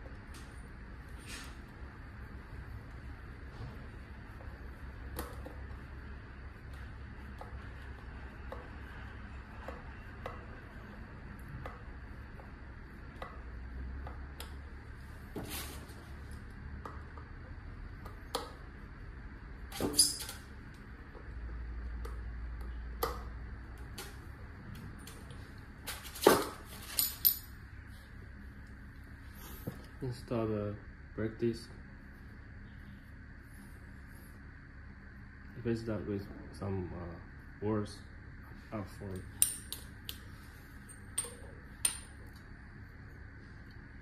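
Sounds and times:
metal parts clicking and clinking: 0:26.8 - 0:27.5.

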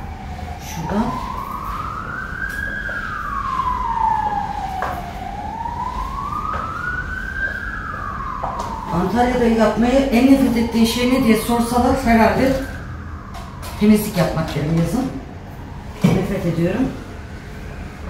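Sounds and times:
emergency siren wailing: 0:00.0 - 0:18.0.

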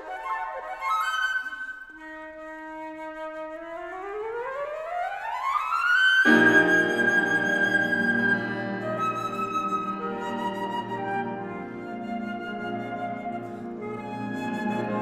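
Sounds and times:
flute playing: 0:00.0 - 0:15.0
grand piano chord: 0:06.3 - 0:11.8.

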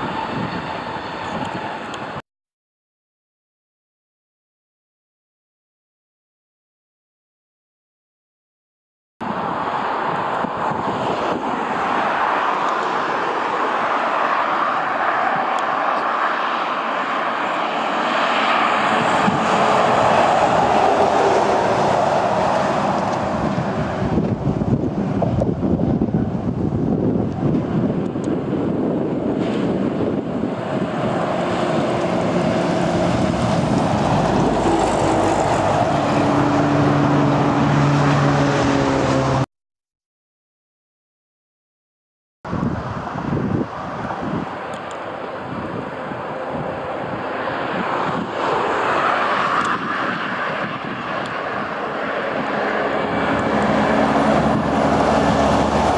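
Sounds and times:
road traffic passing: 0:00.0 - 0:02.2, 0:09.2 - 0:39.5, 0:42.5 - 0:55.9
truck approaching: 0:09.2 - 0:39.5, 0:43.7 - 0:55.9.

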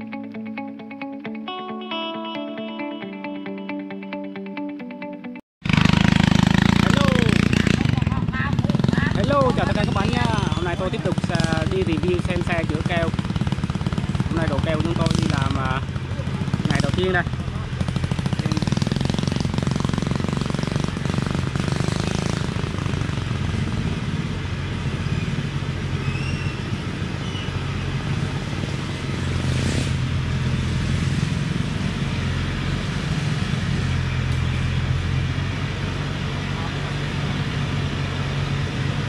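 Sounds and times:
truck diesel engine running: 0:05.6 - 0:39.0.

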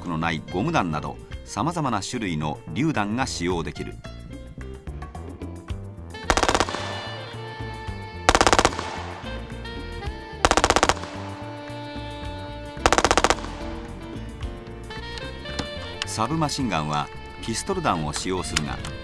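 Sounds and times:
background music: 0:00.0 - 0:19.0
automatic gunfire bursts: 0:06.3 - 0:07.6, 0:08.3 - 0:09.6, 0:10.5 - 0:11.9, 0:12.9 - 0:14.0.

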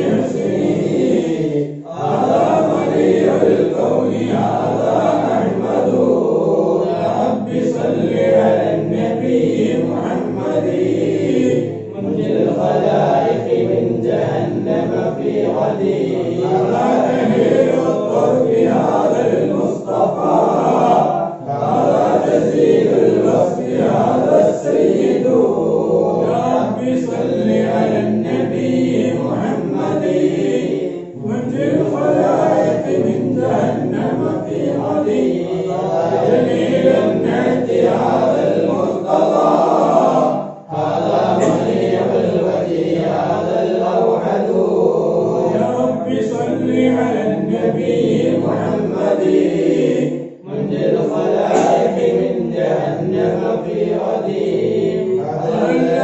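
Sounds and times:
men chanting in unison: 0:00.0 - 0:56.0.

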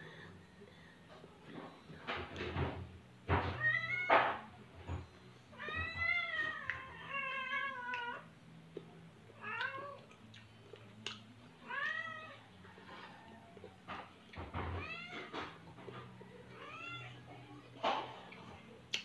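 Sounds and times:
cat meowing: 0:05.5 - 0:08.3, 0:11.6 - 0:12.4.

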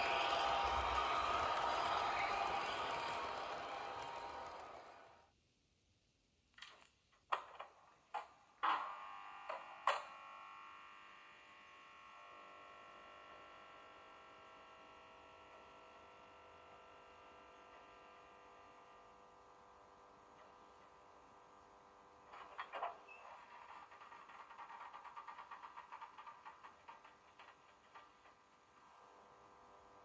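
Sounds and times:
model locomotive electric hum: 0:08.6 - 0:30.0.

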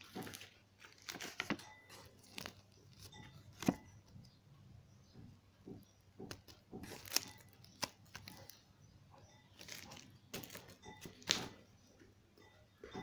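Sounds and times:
paper rustling and crinkling: 0:00.0 - 0:03.9, 0:06.3 - 0:08.6, 0:09.6 - 0:11.6.

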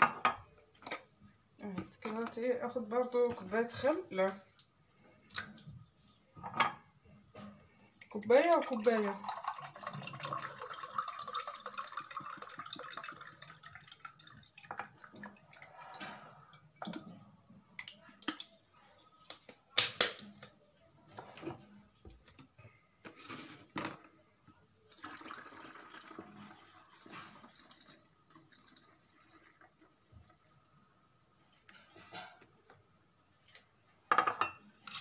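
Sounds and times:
liquid pouring through a funnel: 0:07.8 - 0:18.6, 0:24.9 - 0:30.6
liquid pouring into a glass: 0:07.9 - 0:18.6, 0:24.9 - 0:30.4.

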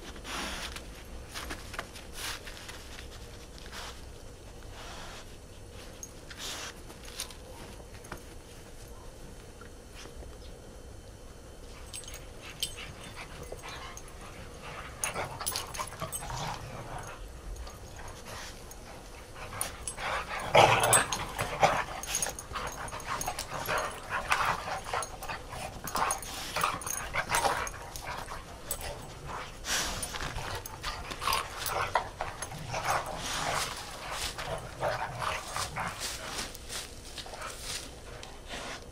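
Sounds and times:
dogs playing noises: 0:00.0 - 0:38.9.

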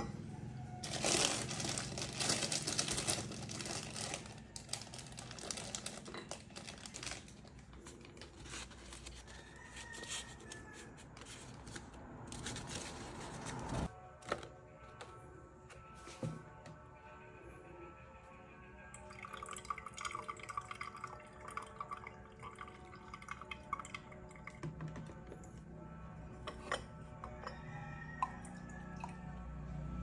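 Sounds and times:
paper filter crinkling: 0:00.8 - 0:10.3.

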